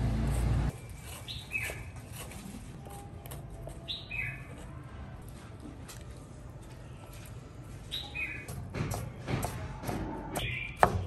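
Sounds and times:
bird chirping: 7.8 - 8.5, 10.4 - 11.0.

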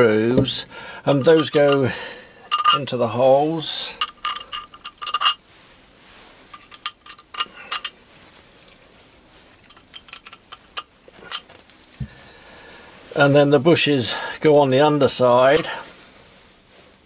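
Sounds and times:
metal bolts clinking: 0.4 - 1.9, 2.5 - 2.9, 4.0 - 5.4, 6.6 - 8.0, 9.6 - 11.5.

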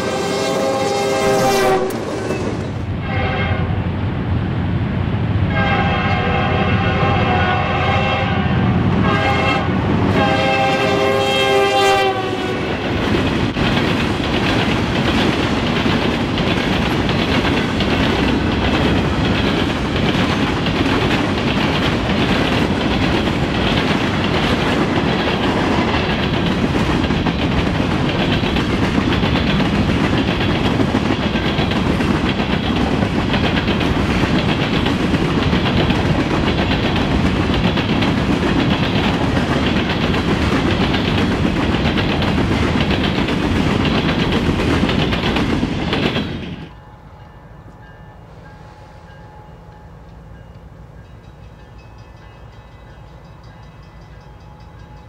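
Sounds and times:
locomotive horn: 0.0 - 2.1, 3.0 - 3.8, 5.5 - 12.8
train wheels clacking on rails: 10.1 - 46.8.

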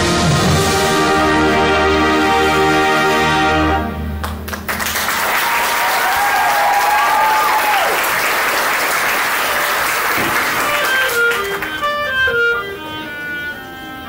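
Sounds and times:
marching band brass chord: 0.0 - 4.4, 8.1 - 14.0
crowd applause and cheering: 4.2 - 11.9.

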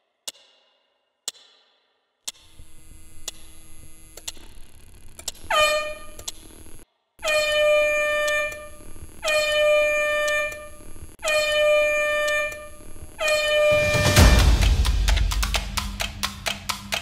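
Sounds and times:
alarm clock horn-like blasts: 5.5 - 6.2, 7.2 - 17.0.

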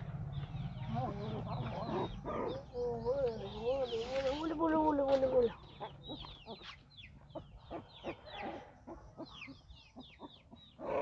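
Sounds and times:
puppies squeaking and whimpering: 5.6 - 11.0.

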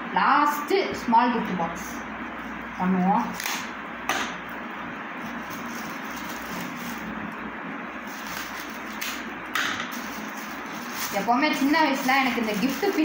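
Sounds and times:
steady background noise: 0.0 - 13.0
plastic gift wrap crinkling: 5.2 - 7.2, 8.0 - 9.3, 9.9 - 13.0.

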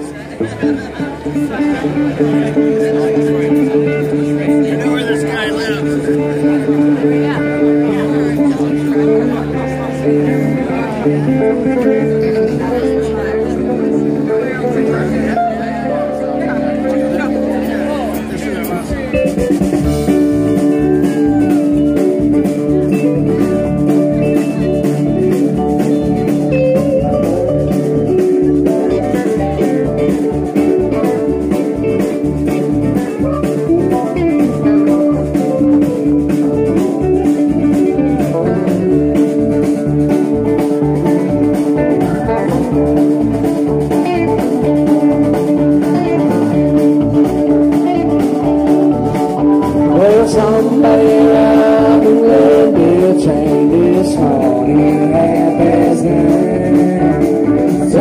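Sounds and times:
electric guitar lines: 0.0 - 58.0
steady drum beat: 18.1 - 58.0.

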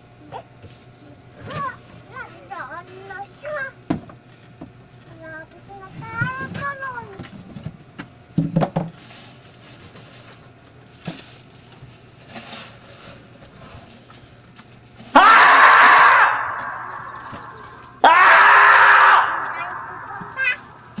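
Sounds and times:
high-pitched scream: 15.1 - 21.0.

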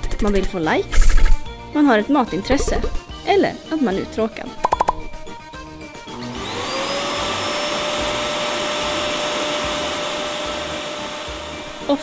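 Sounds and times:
vacuum cleaner whine and hiss: 6.1 - 12.0.

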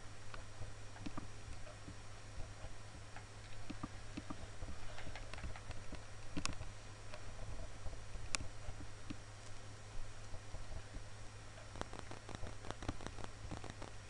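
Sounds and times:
low hum: 0.0 - 14.0
computer mouse clicks: 11.7 - 14.0.

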